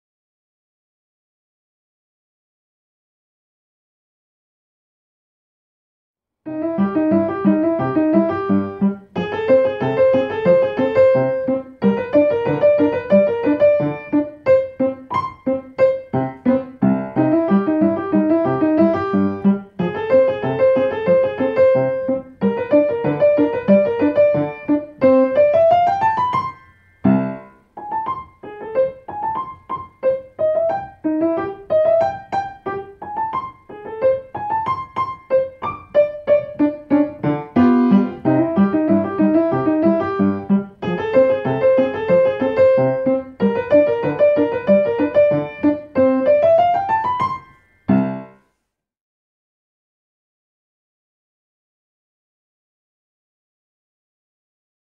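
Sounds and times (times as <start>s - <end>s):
piano piece: 6.4s - 48.5s.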